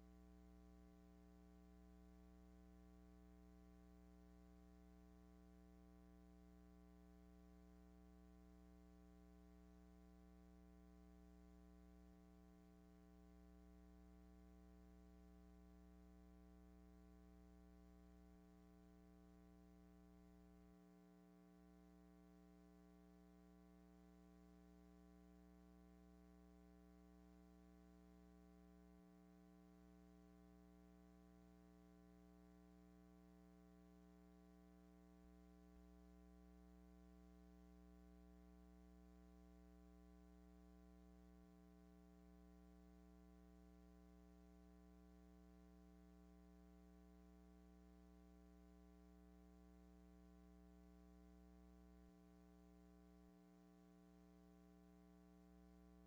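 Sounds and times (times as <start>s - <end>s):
faint steady hum: 0.0s - 56.0s.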